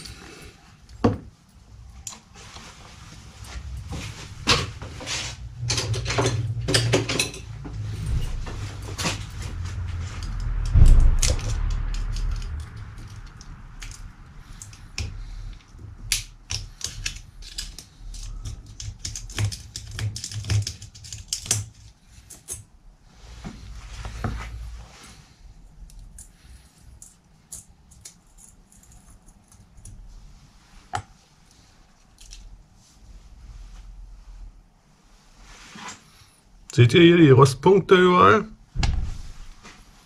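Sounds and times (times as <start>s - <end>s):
small metallic clicks and rattles: 10.0s - 22.7s, 25.8s - 30.0s.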